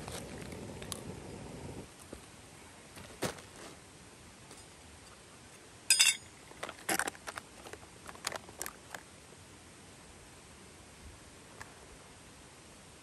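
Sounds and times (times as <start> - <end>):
cookware clattering and clinking: 5.9 - 6.2.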